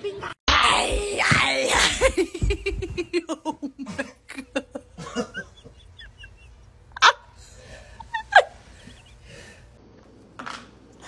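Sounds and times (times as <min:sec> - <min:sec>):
person laughing breathlessly: 0:01.9 - 0:09.7.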